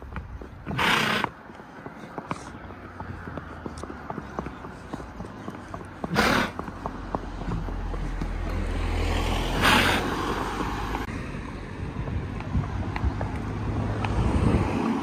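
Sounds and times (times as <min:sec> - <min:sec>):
wind buffeting microphone: 0:00.0 - 0:06.3, 0:10.4 - 0:15.0.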